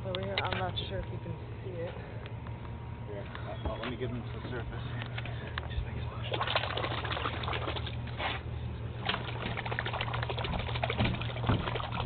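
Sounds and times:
steady low hum: 0.0s - 12.0s
water sloshing underwater: 5.2s - 12.0s.

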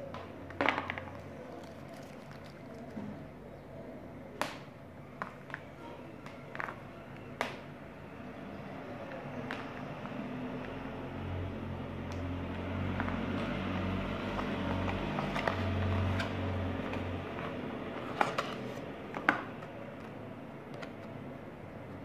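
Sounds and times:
cardboard and paper rustling: 0.7s - 3.3s, 14.7s - 21.2s.

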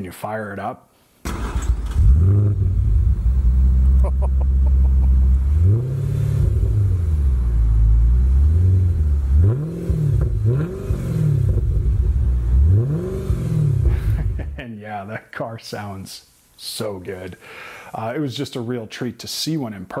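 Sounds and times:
engine throttle blips: 1.3s - 14.4s
car engine idling: 1.3s - 14.5s.

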